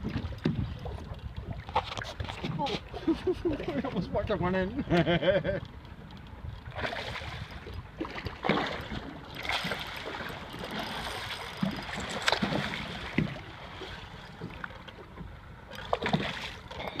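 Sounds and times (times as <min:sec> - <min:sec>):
wind on microphone: 0:06.4 - 0:13.4
water washing against boat: 0:06.6 - 0:17.0.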